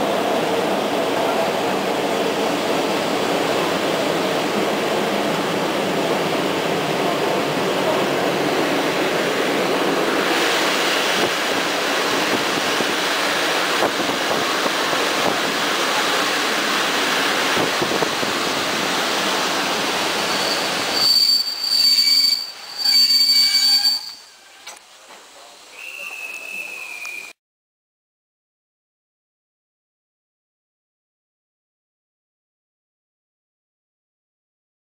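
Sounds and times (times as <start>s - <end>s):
train running on rails: 0.0s - 27.2s
wheel squeal: 20.2s - 24.8s.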